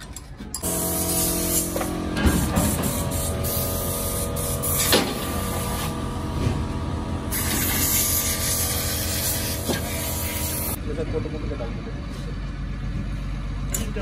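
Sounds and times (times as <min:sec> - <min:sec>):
motor humming: 0:00.6 - 0:10.8
hiss: 0:00.7 - 0:05.8, 0:07.3 - 0:10.8.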